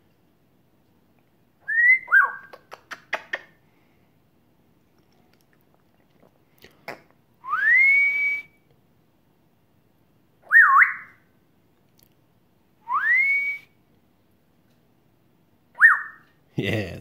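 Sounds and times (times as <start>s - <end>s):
parrot whistling: 1.6s - 2.6s, 10.4s - 11.2s, 12.9s - 13.7s, 15.8s - 16.3s.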